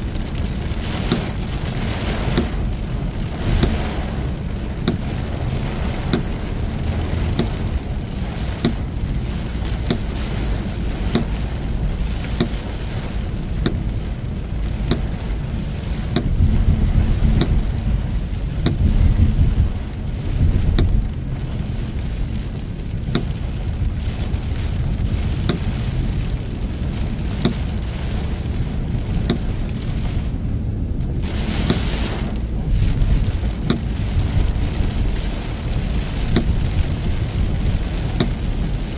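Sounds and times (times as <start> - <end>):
deep road rumble: 0.0 - 38.9
rain hissing on car: 0.0 - 38.9.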